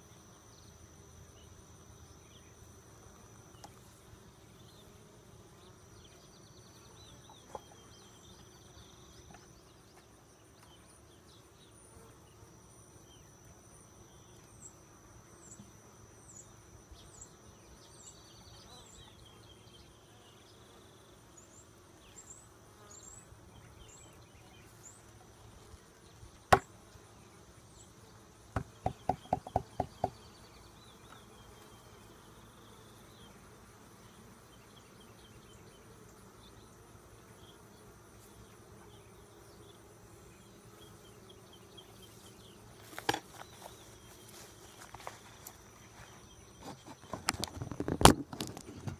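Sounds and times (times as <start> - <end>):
honey bees buzzing: 1.0 - 48.9
wooden knocks of hive boxes: 26.5 - 26.7, 28.5 - 30.3, 42.9 - 43.8, 46.5 - 48.9.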